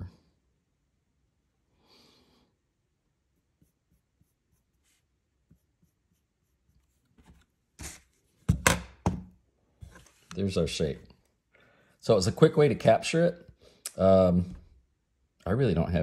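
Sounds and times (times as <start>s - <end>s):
pencil scratching on paper: 3.3s - 8.1s.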